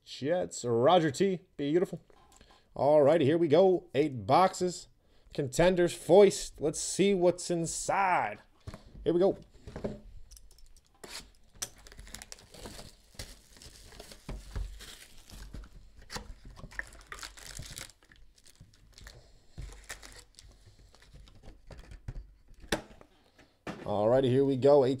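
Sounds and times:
foil packs rustling: 11.0s - 21.4s
plastic wrap tearing and crinkling: 11.0s - 21.4s.

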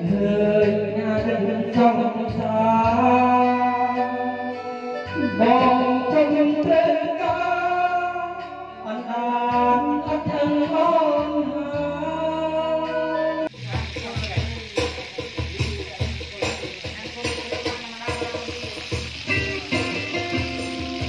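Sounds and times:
song with wavering sung melody: 0.0s - 21.0s
sizzling noise: 13.4s - 21.0s.

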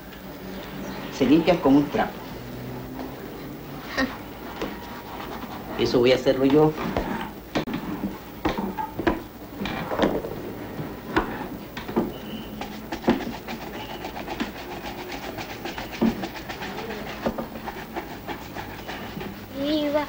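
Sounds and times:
shoe shining rubbing strokes: 3.9s - 5.9s, 10.9s - 20.0s
knocks: 6.5s - 12.2s.

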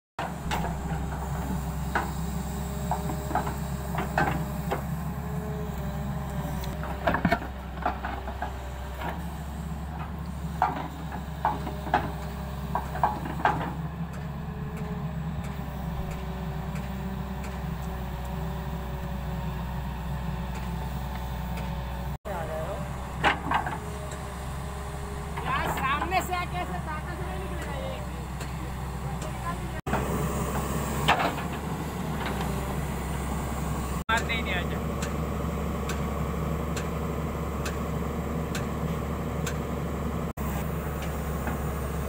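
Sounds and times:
excavator diesel engine running: 0.2s - 42.0s
clanks of bucket and stones: 6.8s - 9.2s, 10.6s - 13.8s, 23.2s - 23.9s.

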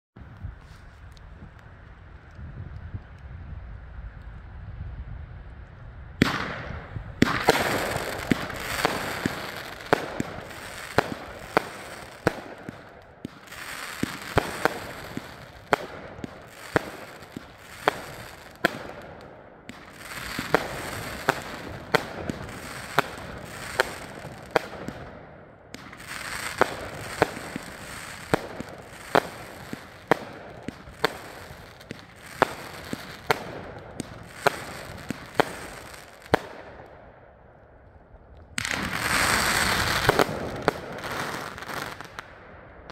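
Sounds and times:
crackling hiss of bursting stars: 5.5s - 24.9s, 25.7s - 36.6s, 38.5s - 42.2s.

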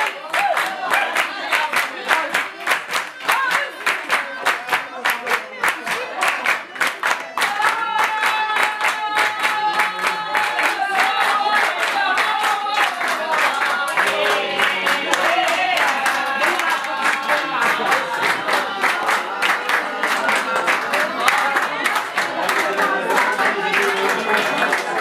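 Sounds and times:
crowd clapping a beat: 0.0s - 25.0s.

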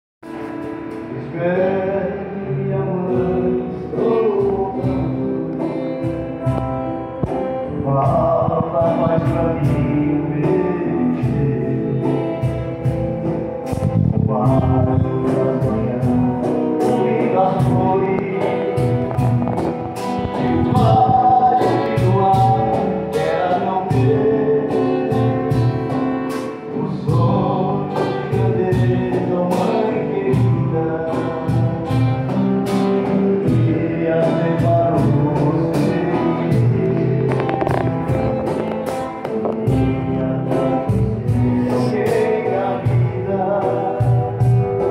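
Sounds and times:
strummed acoustic guitars: 0.2s - 44.9s
man singing: 0.8s - 44.9s
hand percussion beat: 4.0s - 29.8s, 34.7s - 42.4s.

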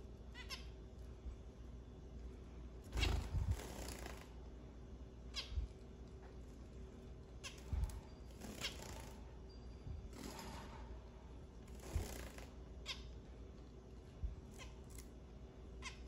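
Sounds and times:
finch calls: 0.3s - 0.7s, 5.3s - 5.6s.

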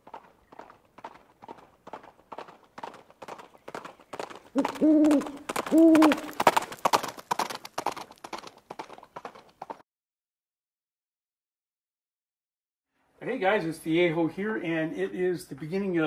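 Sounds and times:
steady clopping: 0.0s - 9.8s
short hooting calls: 4.6s - 6.4s.

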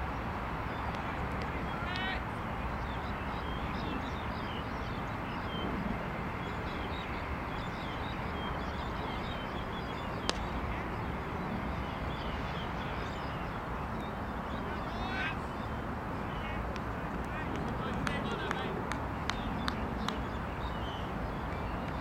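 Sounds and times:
small birds chirping: 0.6s - 22.0s
sharp crack: 10.2s - 10.5s.

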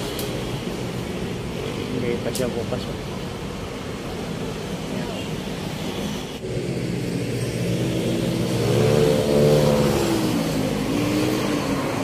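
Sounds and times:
low rumble of traffic: 0.0s - 12.0s
vehicle engine accelerating: 6.4s - 12.0s.

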